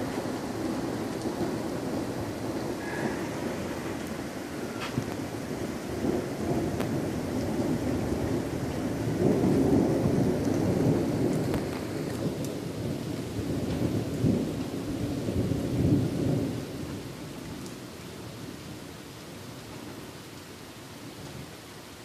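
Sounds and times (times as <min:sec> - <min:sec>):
rolling thunder: 0:00.0 - 0:17.1
steady rain: 0:00.0 - 0:22.0.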